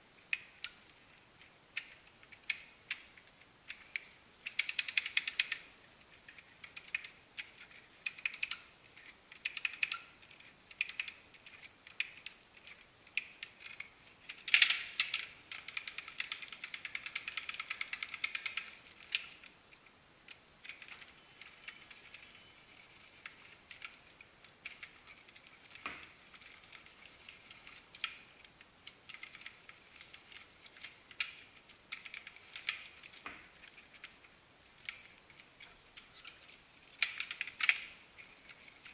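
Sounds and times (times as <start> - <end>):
rapid ratchet-like clicking: 3.7 - 5.7, 6.3 - 19.4
cloth rubbing plastic: 21.0 - 24.1.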